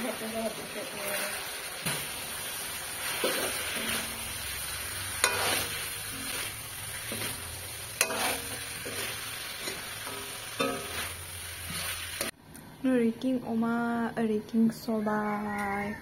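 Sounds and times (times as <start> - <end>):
curry sizzling in a wok: 0.0 - 12.4
metal ladle scraping a pan: 2.9 - 12.3.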